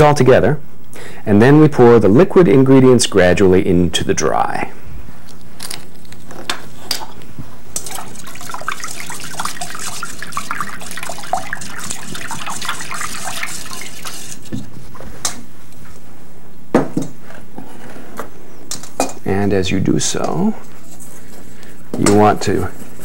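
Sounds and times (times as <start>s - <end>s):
whisk beating liquid in metal bowl: 7.8s - 14.6s.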